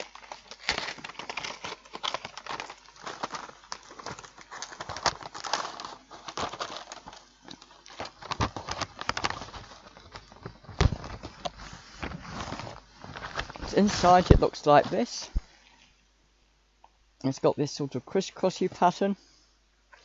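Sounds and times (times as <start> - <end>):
cardboard box tearing and crinkling: 0.0 - 15.1.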